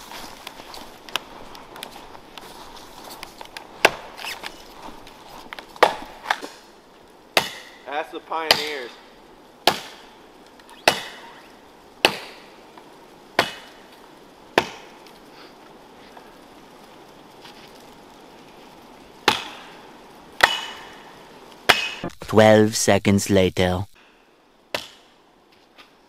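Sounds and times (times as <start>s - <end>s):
axe chopping tree trunk: 3.8s - 4.1s, 5.8s - 6.5s, 7.4s - 7.8s, 8.5s - 8.8s, 9.6s - 10.0s, 10.8s - 11.2s, 12.0s - 12.4s, 13.4s - 13.8s, 14.6s - 14.9s, 19.2s - 19.6s, 20.4s - 20.9s, 21.7s - 22.0s, 24.7s - 25.0s.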